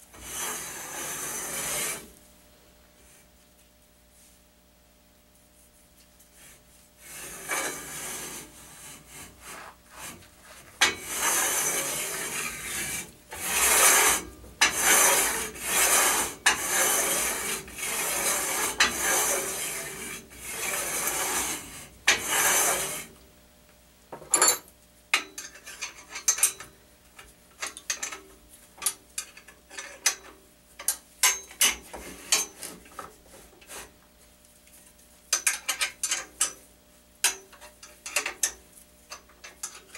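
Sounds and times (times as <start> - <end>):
steel sliding on steel: 0.1 - 2.1, 6.4 - 23.1.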